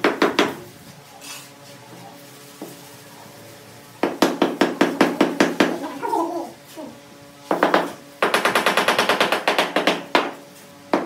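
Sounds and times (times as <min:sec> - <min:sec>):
hard knocks on ceramic tile: 0:07.5 - 0:11.0.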